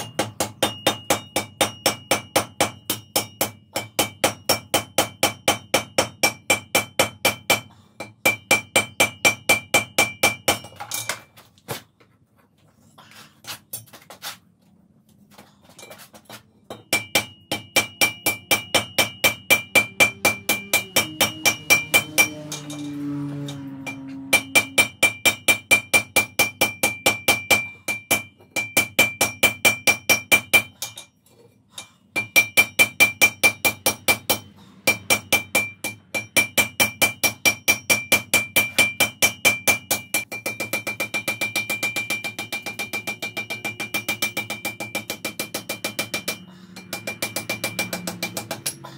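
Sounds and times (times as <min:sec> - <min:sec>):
hammer striking iron on anvil: 0:00.0 - 0:11.2, 0:16.7 - 0:31.1, 0:31.8 - 0:48.9
anvil ringing: 0:00.0 - 0:11.3, 0:16.7 - 0:31.1, 0:32.2 - 0:48.9.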